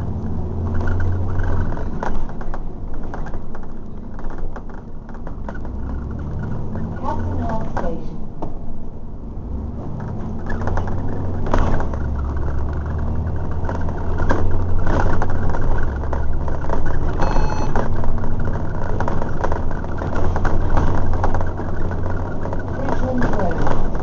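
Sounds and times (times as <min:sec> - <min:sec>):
bus body rattling: 0:00.0 - 0:24.0
bus diesel engine running: 0:00.0 - 0:24.0
short beep: 0:17.2 - 0:17.8.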